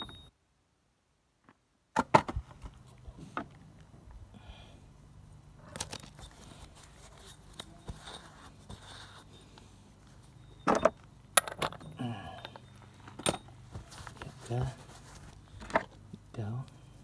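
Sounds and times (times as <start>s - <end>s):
metal parts clanking: 10.6s - 13.5s.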